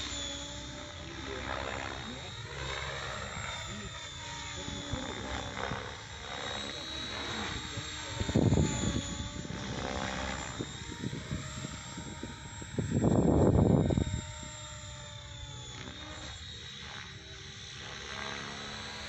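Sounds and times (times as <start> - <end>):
electric motor whine: 0.0 - 19.0
helicopter rotor noise: 0.0 - 19.0.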